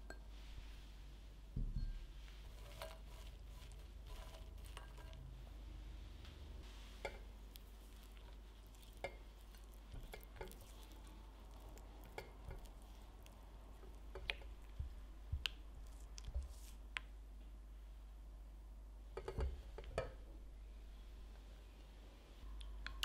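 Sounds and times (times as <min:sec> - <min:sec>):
spatula stirring melted chocolate: 0:02.2 - 0:05.4, 0:06.7 - 0:17.0.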